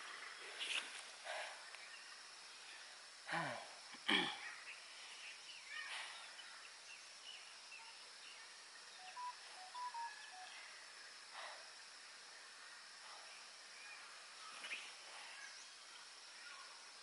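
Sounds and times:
high insect hum: 0:00.0 - 0:17.0
short bird chirps: 0:09.0 - 0:10.7.

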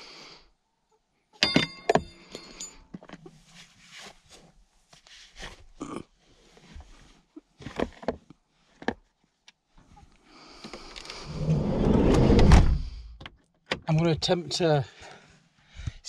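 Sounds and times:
van sliding door rolling: 0:11.0 - 0:13.1.

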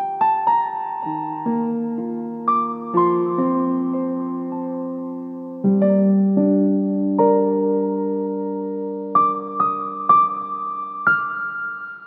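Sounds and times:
slow piano music: 0:00.0 - 0:12.0.

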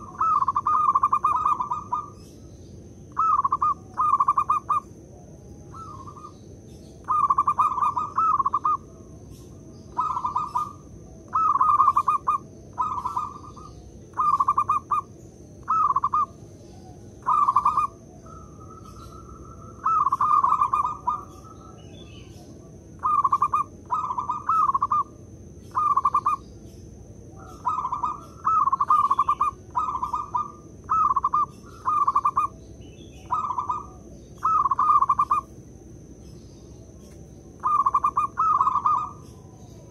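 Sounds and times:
dove cooing: 0:00.0 - 0:35.6, 0:36.7 - 0:39.9
faint high whine: 0:00.0 - 0:39.9.

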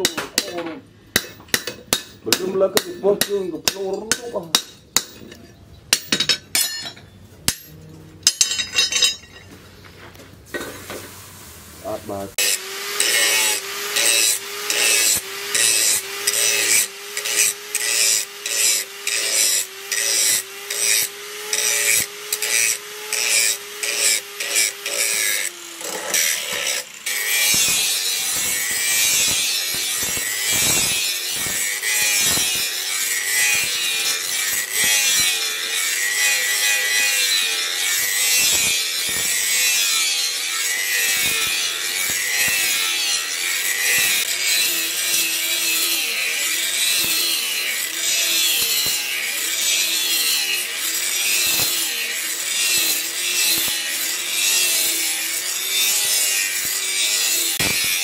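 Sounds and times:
angle grinder grinding steel: 0:01.2 - 0:09.5, 0:11.9 - 0:58.0.

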